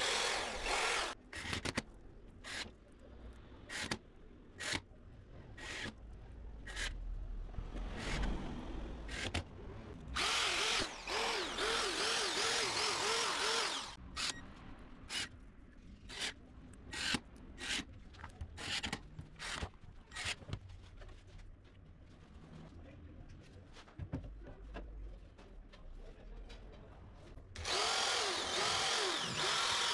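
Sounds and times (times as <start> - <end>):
cordless drill drilling: 0.0 - 1.2, 10.2 - 14.0, 27.6 - 29.9.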